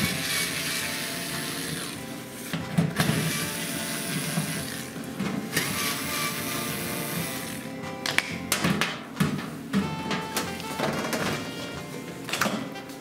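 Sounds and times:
cordless drill running: 0:00.0 - 0:07.8.

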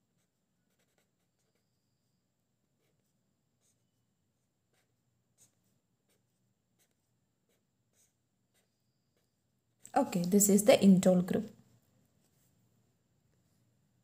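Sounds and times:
pen scratching on paper: 0:00.0 - 0:10.5, 0:11.8 - 0:14.0.

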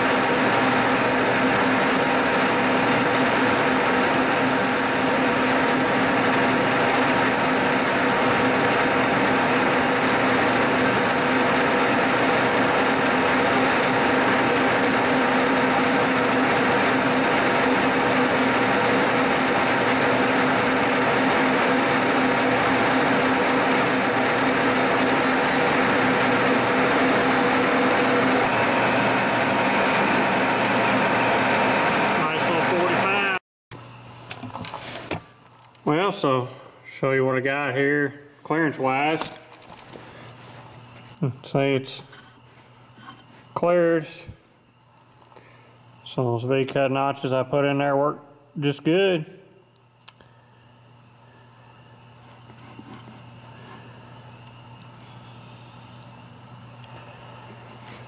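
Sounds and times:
milling machine cutting steel: 0:00.0 - 0:33.4
motor hum: 0:00.0 - 0:36.3.

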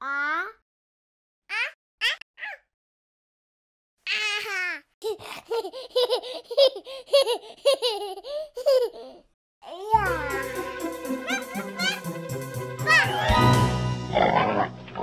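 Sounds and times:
baby giggling: 0:04.1 - 0:10.4.

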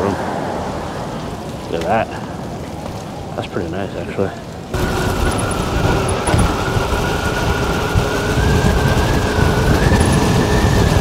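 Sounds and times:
wind buffeting microphone: 0:04.6 - 0:11.0
electric motor whine: 0:04.8 - 0:11.0.

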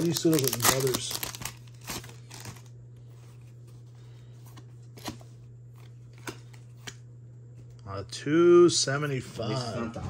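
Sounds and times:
card wrappers rustling and clicking: 0:00.0 - 0:03.9
steady low hum: 0:00.0 - 0:10.0.

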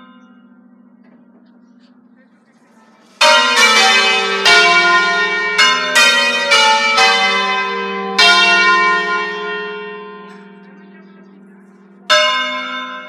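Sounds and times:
church bells ringing: 0:00.0 - 0:13.0.

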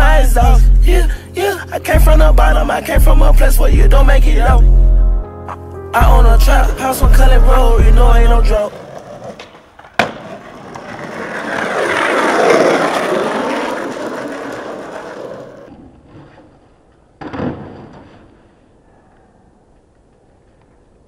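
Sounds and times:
skateboard wheels rolling on pavement: 0:08.1 - 0:18.8
skateboard tail popping and landing: 0:08.6 - 0:16.5, 0:17.2 - 0:18.4
skateboard clack: 0:08.6 - 0:16.6.

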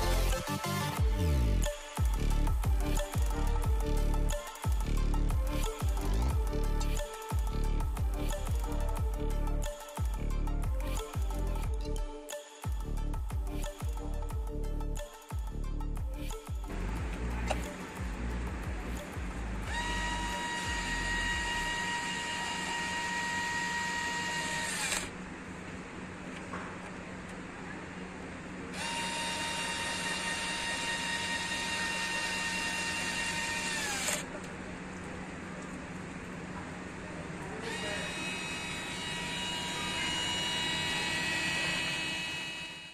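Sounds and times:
cordless screwdriver motor whine: 0:19.6 - 0:25.1, 0:28.8 - 0:34.2, 0:37.6 - 0:42.9.

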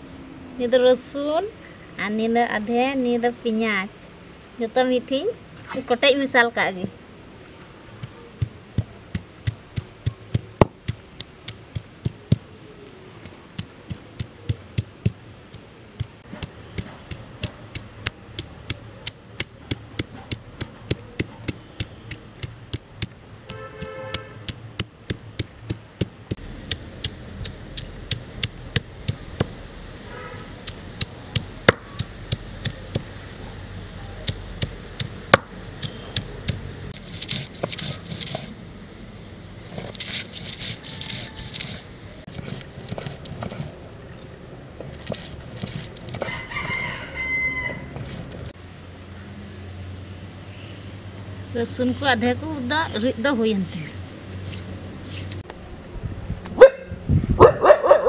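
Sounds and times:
stone pestle pounding on stone: 0:08.0 - 0:12.4, 0:13.2 - 0:15.2, 0:16.0 - 0:29.6, 0:30.6 - 0:33.1, 0:34.2 - 0:38.3.

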